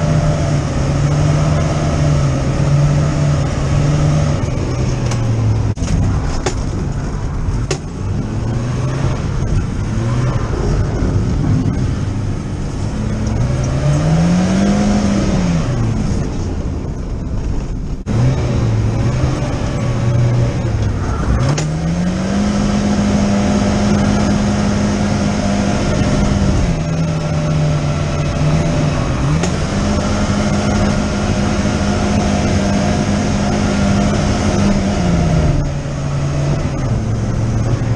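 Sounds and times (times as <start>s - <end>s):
car engine revving: 0.0s - 37.9s.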